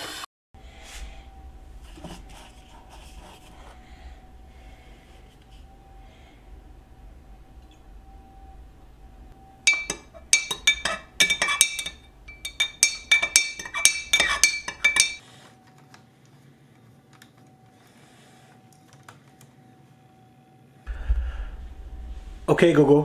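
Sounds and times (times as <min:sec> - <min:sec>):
spoon clinking glass mug: 0:09.7 - 0:15.2.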